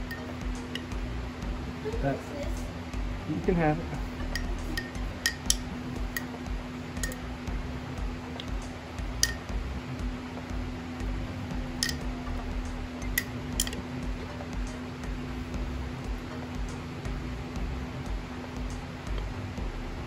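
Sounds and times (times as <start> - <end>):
steady low hum: 0.0 - 20.0
metal spoon clinking on glass: 4.3 - 6.3, 7.0 - 7.2, 9.2 - 9.4, 11.8 - 12.0, 13.0 - 13.8.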